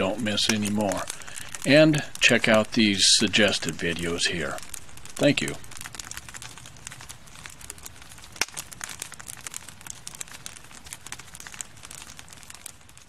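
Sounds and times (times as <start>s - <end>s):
wood fire crackling: 0.0s - 13.0s
loud pop from fire: 4.6s - 13.0s.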